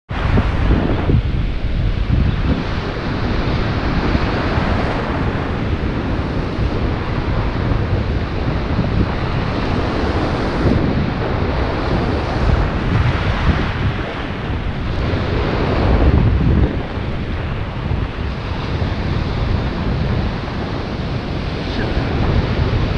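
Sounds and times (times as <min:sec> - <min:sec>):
breaking surf: 0:00.1 - 0:22.9
wind buffeting microphone: 0:00.1 - 0:22.9.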